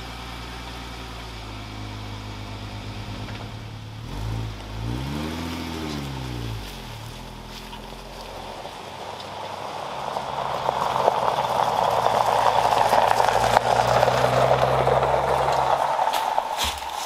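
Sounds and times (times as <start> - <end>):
car engine low hum: 0.0 - 17.0
tyres crunching on gravel: 4.1 - 17.0.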